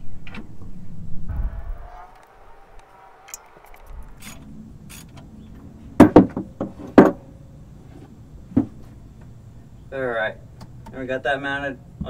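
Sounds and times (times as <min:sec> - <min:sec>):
loud sharp metal knocks: 0:06.0 - 0:07.2.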